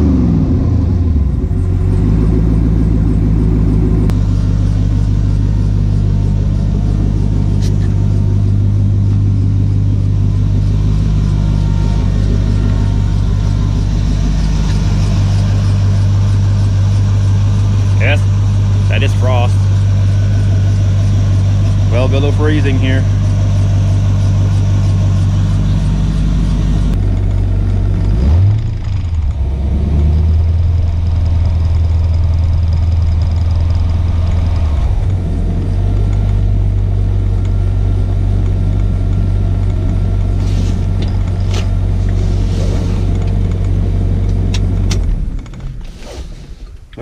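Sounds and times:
car engine idling: 0.0s - 47.0s
engine revving: 0.0s - 47.0s.

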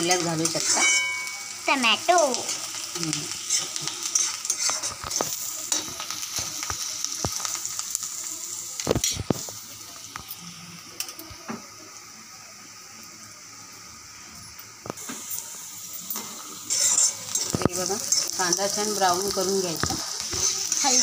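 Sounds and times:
onion sizzling in hot oil: 0.0s - 21.0s.

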